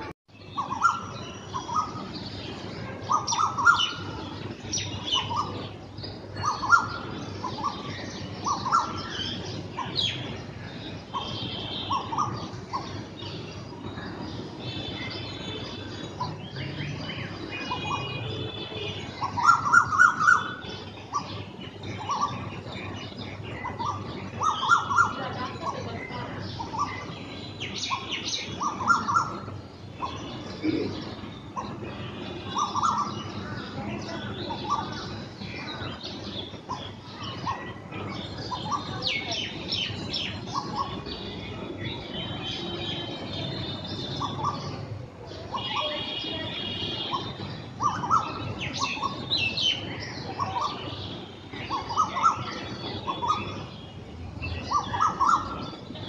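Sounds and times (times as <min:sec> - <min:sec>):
birds calling: 0:00.0 - 0:56.0
bird whistles: 0:47.0 - 0:50.8, 0:51.7 - 0:53.6.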